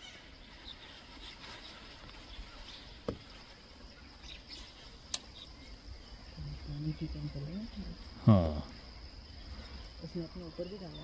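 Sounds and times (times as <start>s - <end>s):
bird chirps: 0.0s - 7.9s
insects droning: 0.0s - 11.0s.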